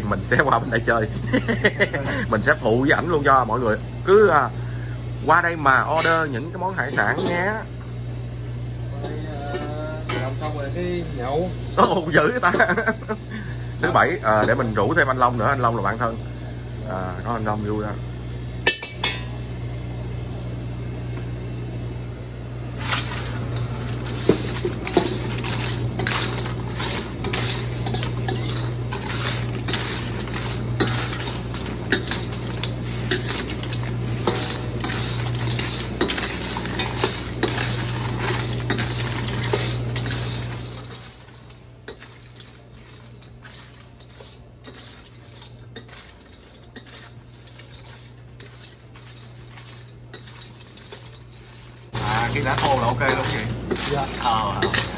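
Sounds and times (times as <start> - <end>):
steady low hum: 0.0 - 54.9
pots and dishes clattering: 18.6 - 19.4, 22.8 - 54.9.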